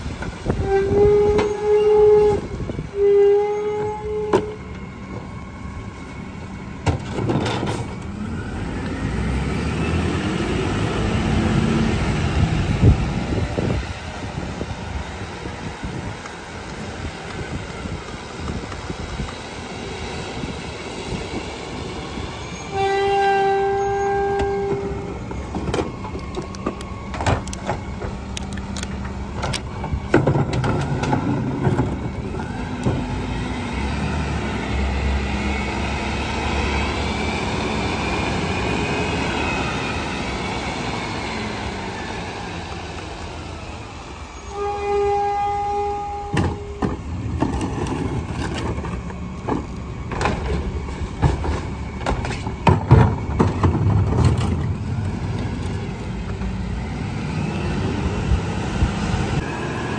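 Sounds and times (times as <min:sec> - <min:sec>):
truck engine and hydraulic whine: 0:00.0 - 0:59.9
steady horn-like tone: 0:00.5 - 0:06.2, 0:22.4 - 0:25.3, 0:44.4 - 0:46.8.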